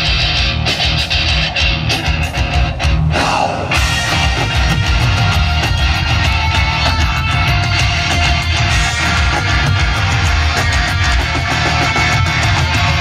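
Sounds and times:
heavy metal band playing live: 0:00.0 - 0:13.0
cymbals: 0:03.6 - 0:10.6.

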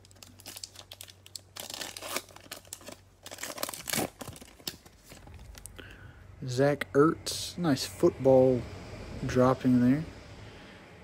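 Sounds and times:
wrapper tearing and crinkling: 0:00.0 - 0:05.7
steady low hum: 0:00.0 - 0:11.0.

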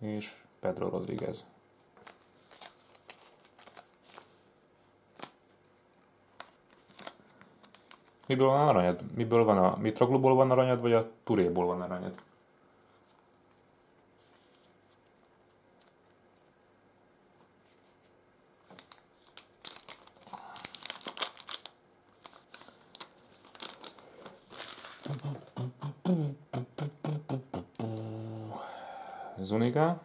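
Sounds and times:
foil pack tearing and crinkling: 0:02.0 - 0:04.3, 0:06.4 - 0:08.3, 0:18.7 - 0:25.4
low voice: 0:25.1 - 0:28.8.

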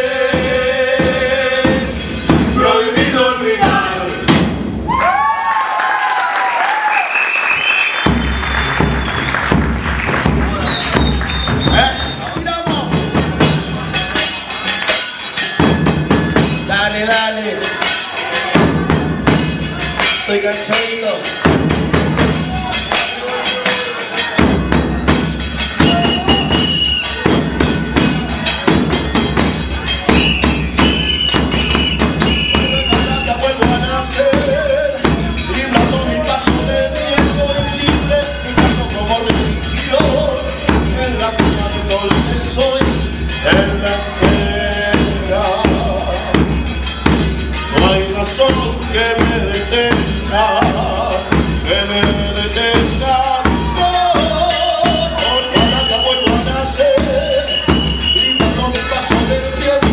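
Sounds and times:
voices singing along: 0:00.0 - 0:04.4, 0:29.8 - 0:46.6, 0:47.6 - 0:59.9
bass drums and cymbals beating: 0:00.0 - 0:05.2, 0:07.5 - 0:59.9.

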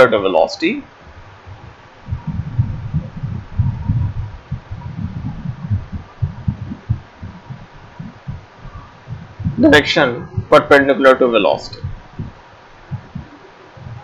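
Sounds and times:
low irregular thumping and rumbling: 0:00.8 - 0:14.0.

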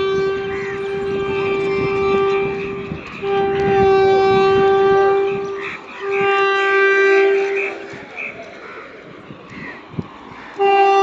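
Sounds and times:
locomotive horn blasts: 0:00.0 - 0:08.4, 0:10.6 - 0:11.0.

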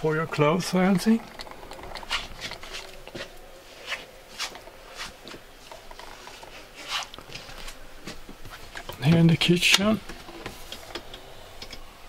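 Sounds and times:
soft rustles and scuffs: 0:02.1 - 0:08.8.

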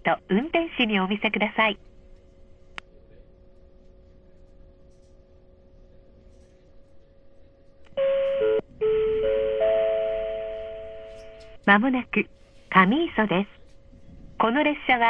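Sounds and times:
faint steady hum: 0:00.0 - 0:15.0
electronic announcement chime: 0:08.0 - 0:11.6.

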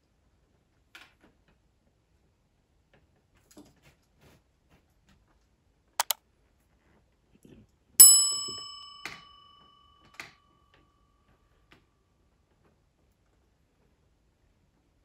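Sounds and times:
bright bell ding: 0:08.0 - 0:09.8.

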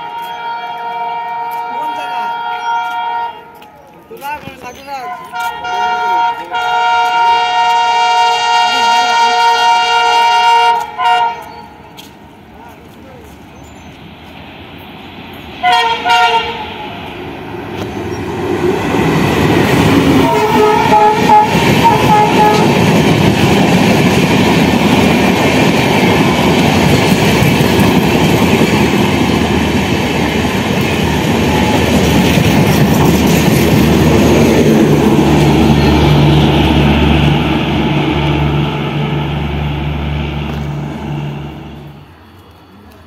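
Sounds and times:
train horn blast: 0:00.0 - 0:03.6, 0:05.1 - 0:11.8, 0:15.6 - 0:16.9, 0:20.1 - 0:23.0
train wheels rumbling over rails: 0:00.0 - 0:43.0.

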